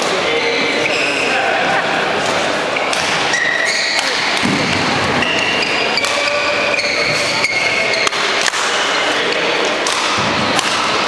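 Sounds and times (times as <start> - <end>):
racket striking shuttlecock: 2.8 - 7.3, 7.9 - 8.9, 9.6 - 11.0
shoe squeaks on court: 3.3 - 8.1.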